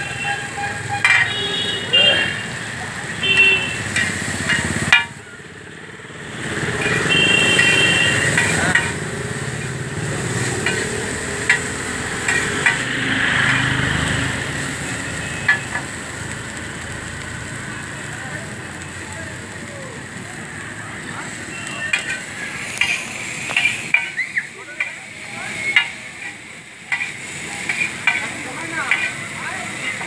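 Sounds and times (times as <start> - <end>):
noodles sizzling on griddle: 0.0 - 30.0
spatulas scraping griddle: 0.2 - 1.5, 3.4 - 5.1, 6.4 - 14.3, 21.4 - 30.0
spatula clinking on iron: 1.0 - 1.4, 3.9 - 5.2, 6.8 - 9.0, 10.4 - 12.9, 21.9 - 30.0.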